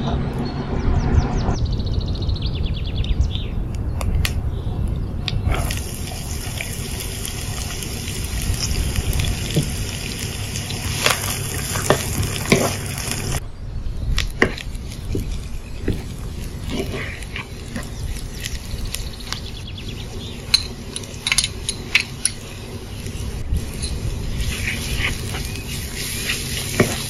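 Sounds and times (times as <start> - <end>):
onion sizzling in hot oil: 5.5 - 13.4, 14.5 - 27.0.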